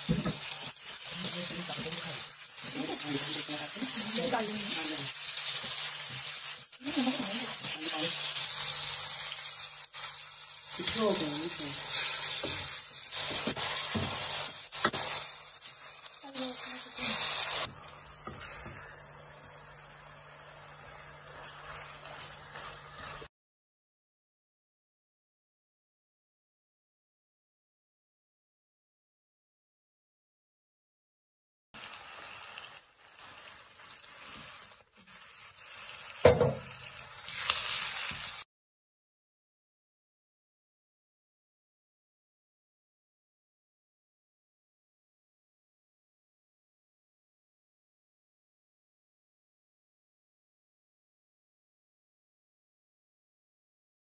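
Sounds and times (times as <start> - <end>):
vegetables sizzling in a pan: 0.0 - 23.3, 31.8 - 38.5
spatula scraping a pan: 10.8 - 19.0, 21.0 - 23.3
wooden spatula stirring: 17.1 - 19.0.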